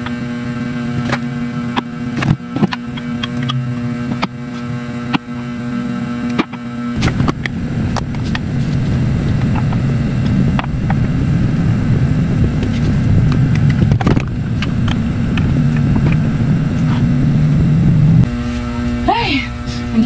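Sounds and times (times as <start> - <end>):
vehicle engine rumbling: 0.0 - 20.0.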